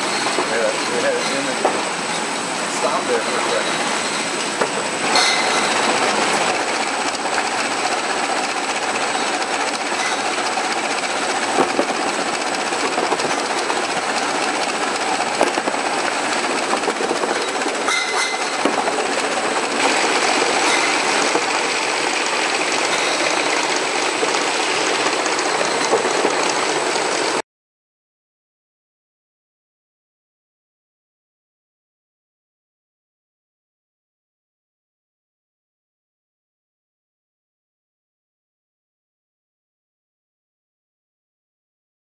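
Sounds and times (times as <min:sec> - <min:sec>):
conveyors running: 0:00.0 - 0:27.4
high-pitched machine whine: 0:00.0 - 0:27.4.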